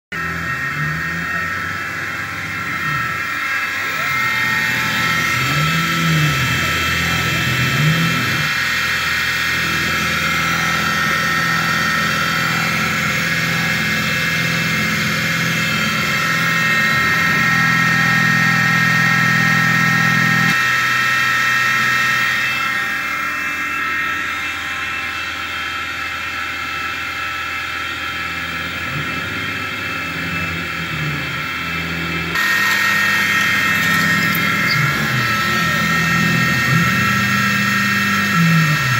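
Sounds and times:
motor hum: 0.1 - 20.6, 28.4 - 38.9
mill spindle whine: 0.1 - 38.9.

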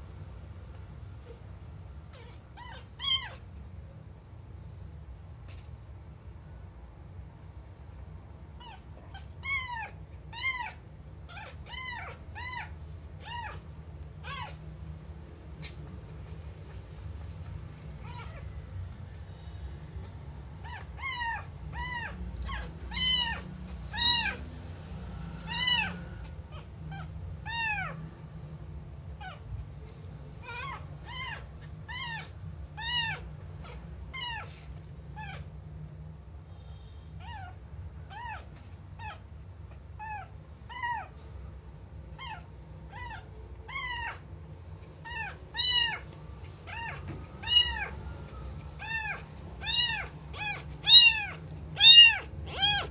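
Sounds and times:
kitten mewing: 8.6 - 14.8, 20.6 - 24.4, 25.5 - 28.0, 30.4 - 34.5, 37.2 - 41.1, 42.2 - 44.3, 45.0 - 52.9.

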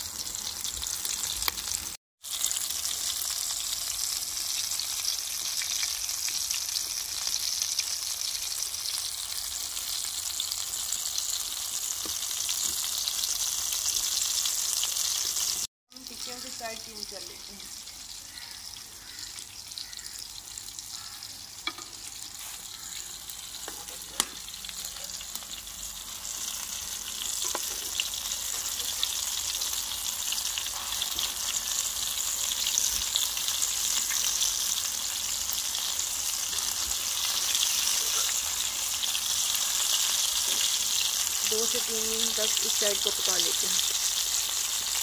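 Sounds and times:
patties sizzling in hot oil: 0.0 - 45.0.

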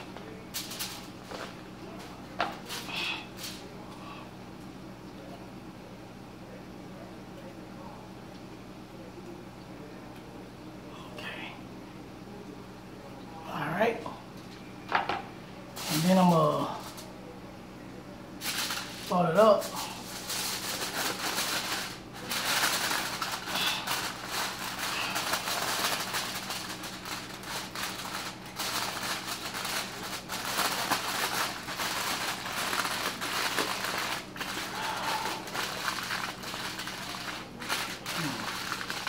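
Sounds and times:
aluminium foil crinkling: 0.0 - 3.8, 15.7 - 17.1, 18.4 - 39.0.

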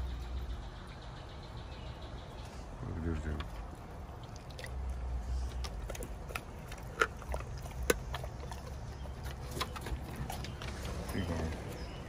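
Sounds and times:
dog chewing crunchy bones: 3.1 - 12.0.

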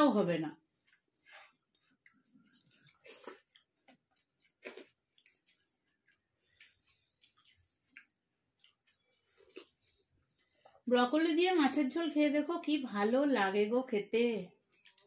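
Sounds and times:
chewing and wet mouth clicks: 0.7 - 10.8, 14.5 - 15.0
soft smacks and squishes: 0.7 - 10.8.

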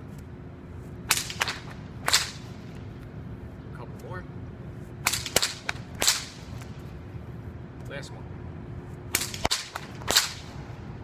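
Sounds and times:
whip cracking: 1.1 - 2.6, 5.0 - 6.8, 9.1 - 10.6.

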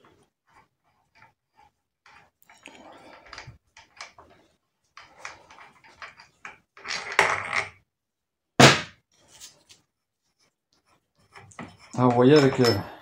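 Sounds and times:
metal tools scraping and clattering: 1.0 - 7.7, 11.2 - 13.0.

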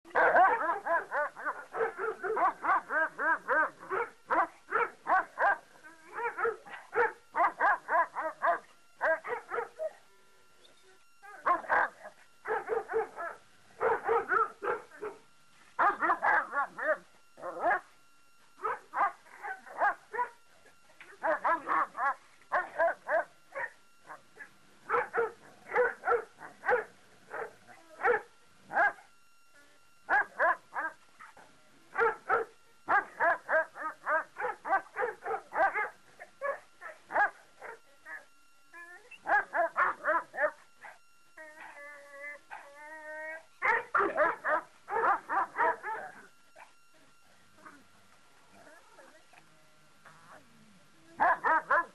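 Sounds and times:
dog barking: 0.1 - 5.6, 6.2 - 9.9, 11.4 - 15.2, 15.8 - 17.9, 18.6 - 20.4, 21.2 - 24.2, 24.9 - 29.0, 30.1 - 31.4, 32.0 - 37.8, 39.2 - 41.0, 43.6 - 46.8, 51.2 - 51.9.

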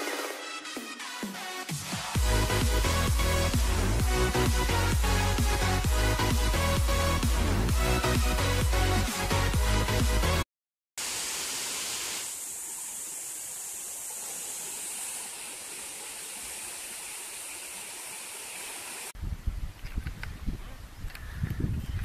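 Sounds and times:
background music: 0.0 - 10.4
waterfall rushing: 11.0 - 19.2.

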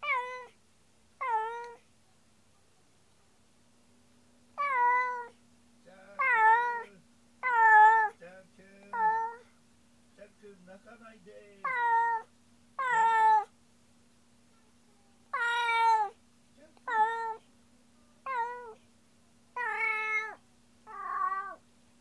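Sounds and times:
cat meowing loudly: 0.0 - 0.6, 1.2 - 1.8, 4.6 - 5.3, 11.6 - 13.5, 15.3 - 16.2, 16.9 - 17.4, 18.2 - 18.8, 19.6 - 21.6.

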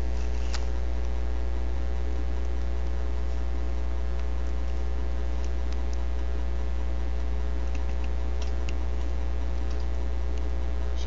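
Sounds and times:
electrical hum: 0.0 - 11.0
faint clicks: 2.1 - 10.6.

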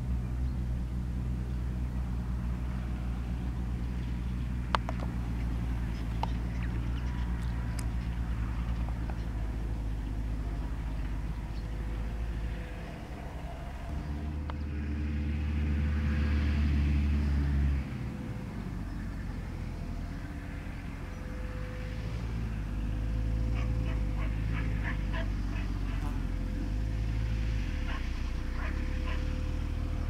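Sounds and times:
tractor engine running under load: 0.0 - 30.0
dog yapping: 23.6 - 26.1, 27.9 - 29.4.

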